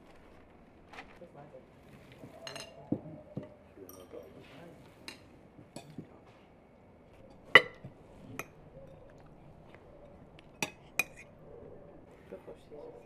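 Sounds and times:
cutlery clinking on plates: 0:02.4 - 0:04.3, 0:07.2 - 0:09.1, 0:10.6 - 0:11.3.

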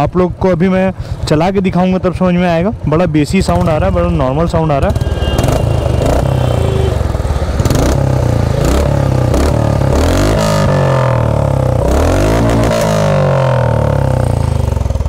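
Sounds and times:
motorcycle engine revving: 0:03.4 - 0:15.0.

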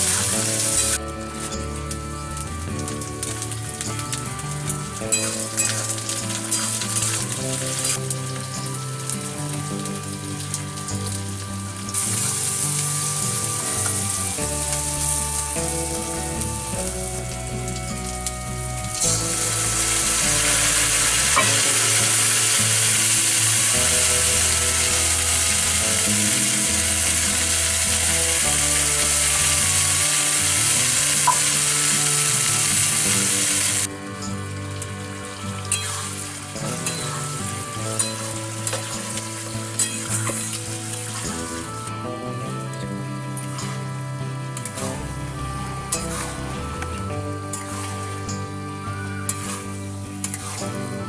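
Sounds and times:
chicken sizzling in oil: 0:00.0 - 0:01.5, 0:18.0 - 0:33.9
background music with low notes: 0:00.0 - 0:51.0.

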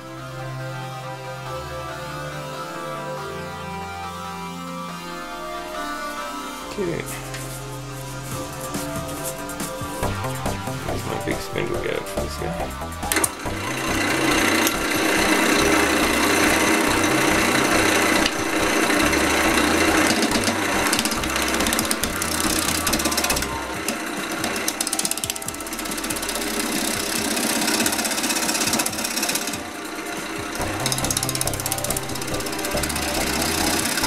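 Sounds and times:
wood lathe gouge scraping: 0:13.0 - 0:34.0.

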